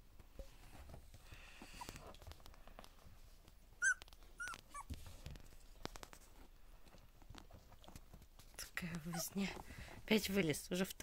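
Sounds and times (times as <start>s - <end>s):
puppies squeaking: 3.8s - 5.0s.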